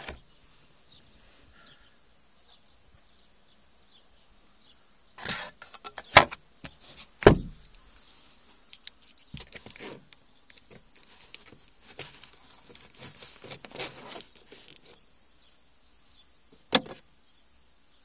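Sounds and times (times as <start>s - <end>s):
light plastic clicks: 8.7s - 11.8s
plastic sun visor snapping shut: 16.7s - 17.0s.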